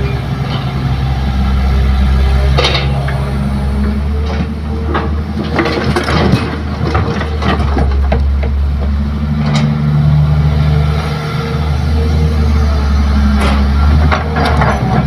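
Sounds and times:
excavator diesel engine: 0.0s - 15.0s
soil and rocks clattering into truck bed: 4.2s - 9.7s.

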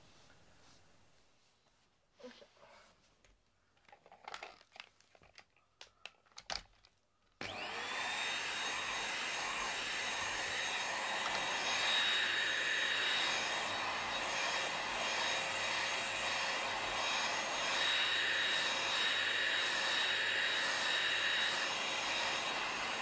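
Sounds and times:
handheld vacuum cleaner whining: 7.4s - 23.0s.

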